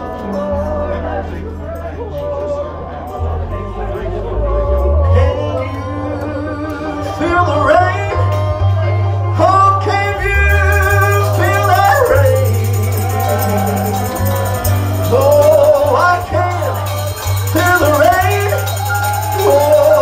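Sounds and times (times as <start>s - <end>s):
bass line: 0.0s - 20.0s
person singing gospel: 0.0s - 20.0s
fast high shaker rhythm: 10.7s - 20.0s.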